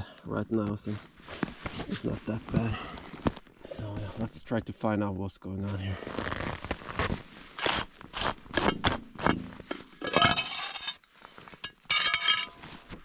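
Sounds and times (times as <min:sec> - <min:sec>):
scraping snow off plastic: 0:06.0 - 0:11.6.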